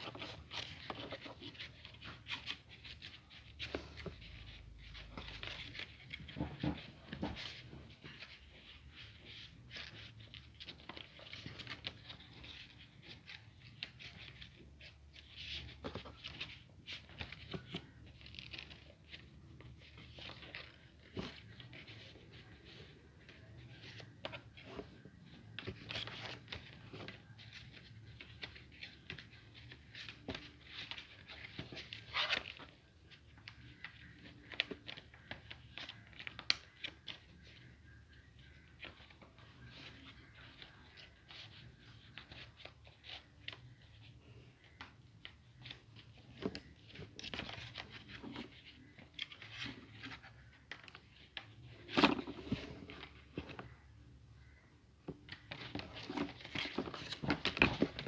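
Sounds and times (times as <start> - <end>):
paper rustling and crinkling: 0.0 - 58.0.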